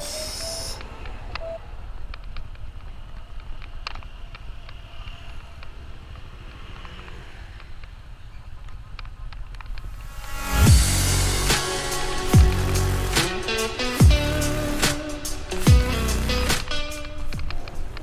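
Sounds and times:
scooter engine and road rumble: 0.0s - 18.0s
faint clicks: 0.7s - 10.1s.

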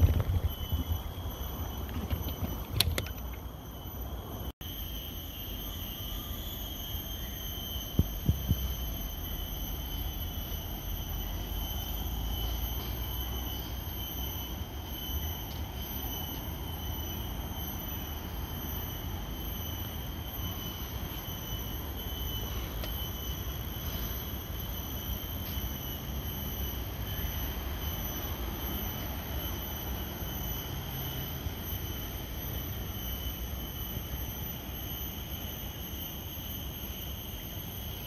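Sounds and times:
wind rumble on microphone: 0.0s - 3.0s
high-pitched whine: 0.0s - 38.0s.

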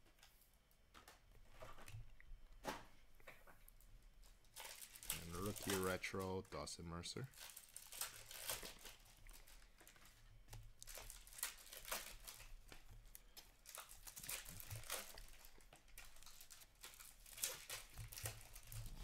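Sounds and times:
trading cards flicking and rustling: 4.6s - 6.4s.

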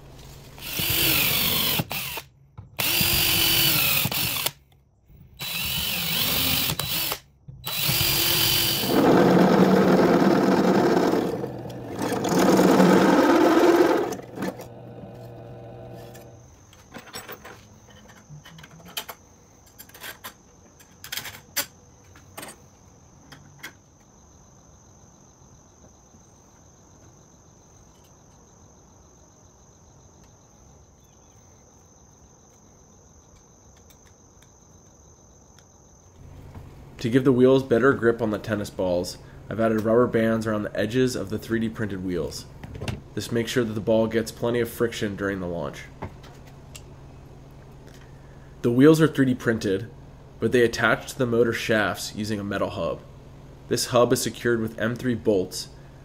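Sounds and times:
drill press cutting steel: 5.4s - 16.4s
high insect drone: 5.4s - 19.8s, 21.9s - 36.5s.

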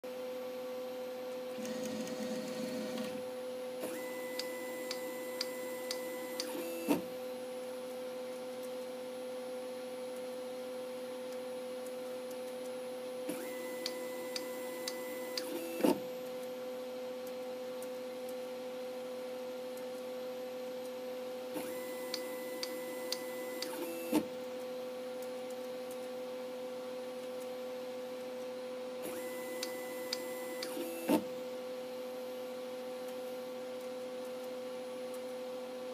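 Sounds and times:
motor whining and ticking: 1.6s - 3.2s, 3.8s - 7.1s, 13.3s - 16.4s, 21.6s - 24.6s, 29.0s - 31.3s.

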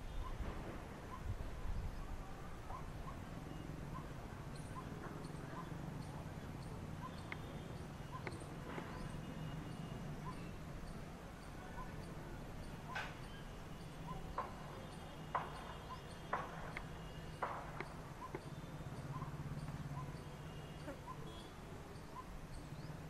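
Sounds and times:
coppersmith barbet calling: 0.0s - 0.4s, 1.0s - 23.0s
sharp knocks: 14.3s - 16.8s, 17.4s - 18.0s.

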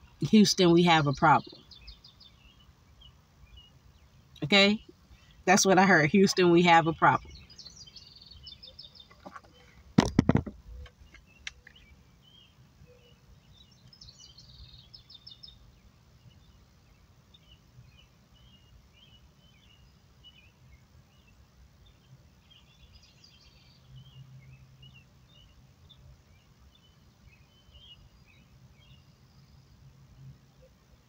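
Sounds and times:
faint birds chirping: 0.0s - 31.0s.

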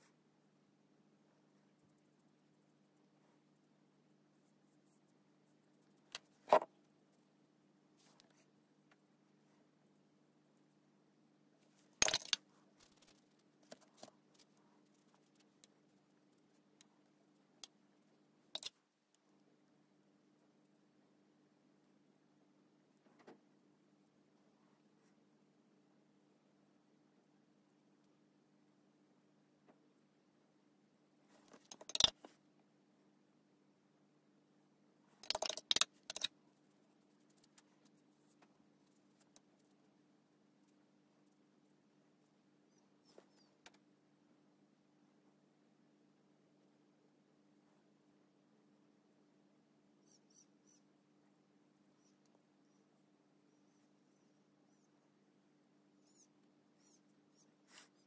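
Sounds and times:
faint steady hum: 0.0s - 58.0s
paintbrush clinking in glass jar: 12.0s - 12.4s, 31.7s - 32.2s, 35.2s - 36.3s.

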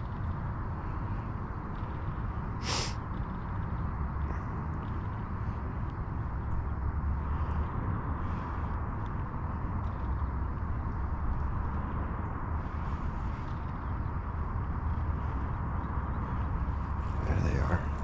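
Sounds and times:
outdoor rumble and hiss: 0.0s - 18.0s
sharp hiss: 2.6s - 3.0s.

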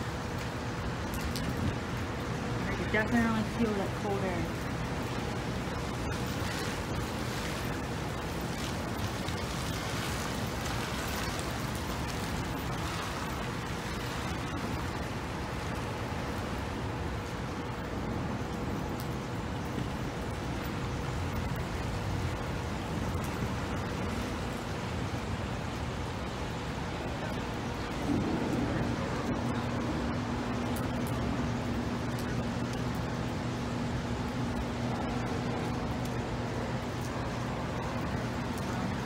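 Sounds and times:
distant traffic: 0.0s - 39.0s.

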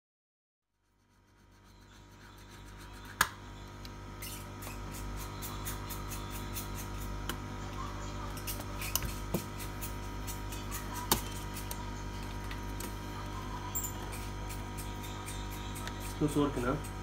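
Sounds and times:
steady electrical hum: 0.8s - 17.0s
screwdriver clicking and scraping: 2.7s - 7.4s, 8.3s - 13.0s, 13.7s - 17.0s.

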